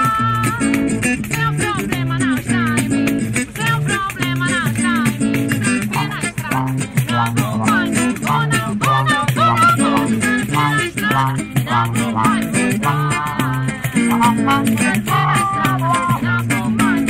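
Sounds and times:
hand percussion: 0:00.0 - 0:17.0
strummed guitar: 0:00.0 - 0:17.0
woman singing: 0:00.0 - 0:17.0
trombone: 0:05.9 - 0:13.3, 0:14.0 - 0:16.1.

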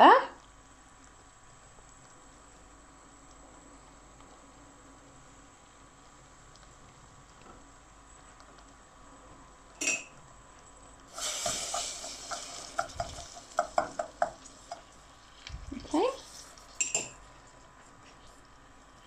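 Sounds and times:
caramel bubbling in saucepan: 0:00.4 - 0:19.0
hissing: 0:11.1 - 0:14.8.

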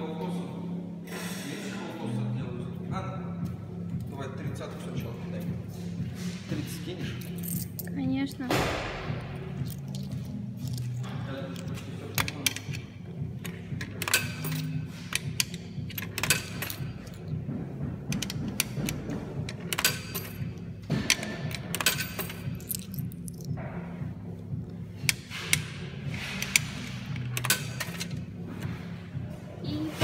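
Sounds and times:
sharp clicks and knocks: 0:12.1 - 0:23.5.

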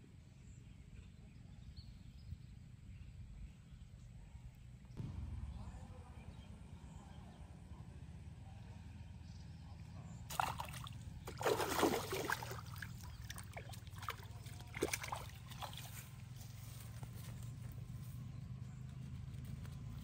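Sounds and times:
fish splashing in water: 0:10.3 - 0:16.1.

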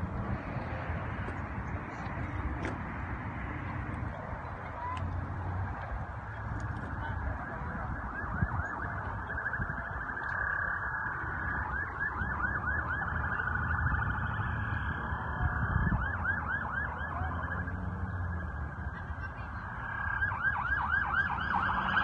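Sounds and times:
siren rising and falling: 0:06.2 - 0:22.0.

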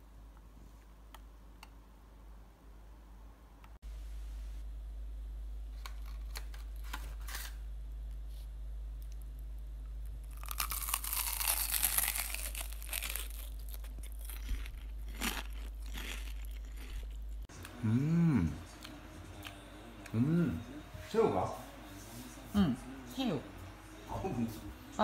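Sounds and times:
crunching fried toast: 0:10.2 - 0:17.4.

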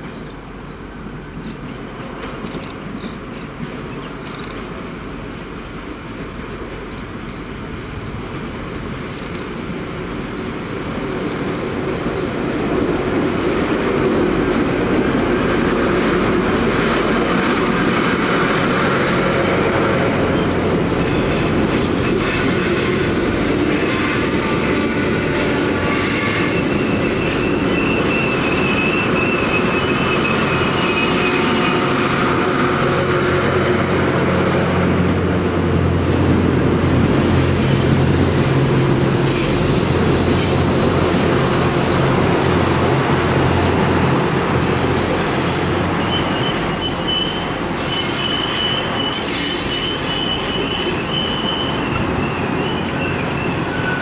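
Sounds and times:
train rolling on steel rails: 0:00.0 - 0:54.0
high wheel squeal: 0:20.2 - 0:33.1, 0:38.7 - 0:42.2, 0:44.6 - 0:54.0.

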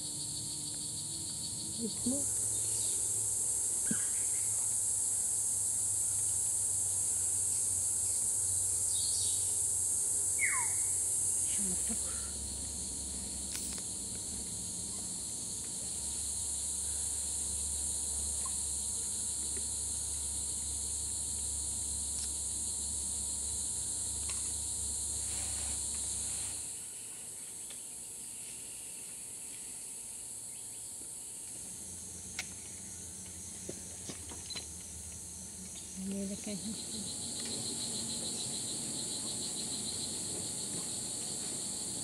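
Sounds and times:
high-pitched insect chorus: 0:00.0 - 0:42.0
faint bird chirps: 0:10.4 - 0:10.9.

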